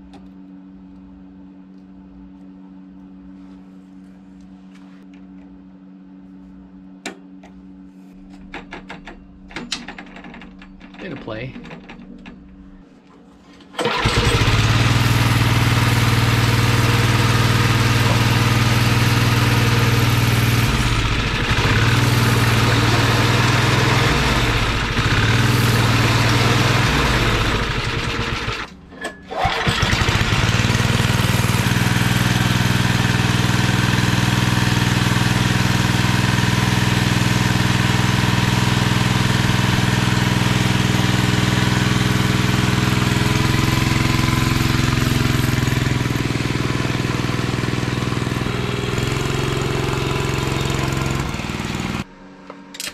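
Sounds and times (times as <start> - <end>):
small engine running: 13.8 - 28.7, 29.4 - 52.1.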